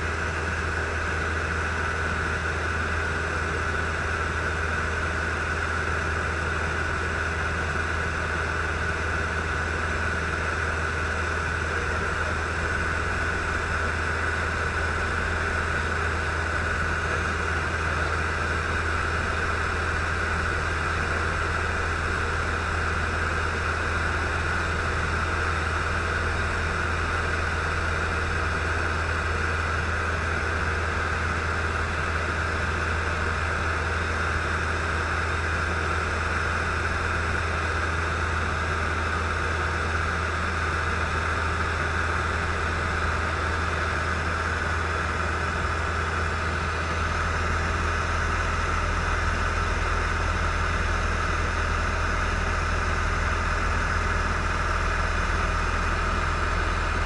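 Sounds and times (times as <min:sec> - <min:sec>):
aircraft engine and propeller drone: 0:00.0 - 0:57.0.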